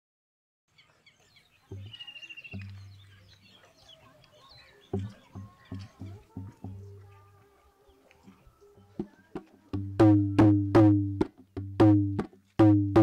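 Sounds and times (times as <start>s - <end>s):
birds chirping: 0.7s - 10.5s
deep drum beats: 1.7s - 3.2s, 4.9s - 7.0s, 9.0s - 13.0s.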